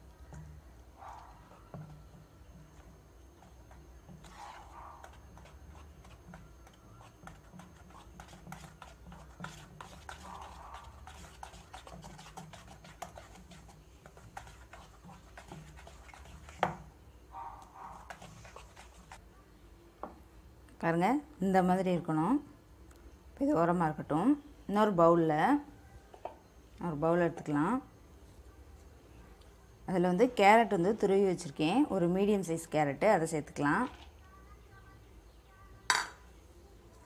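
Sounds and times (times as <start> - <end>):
whisk scraping a plastic bowl: 3.4 - 16.8, 17.9 - 19.2.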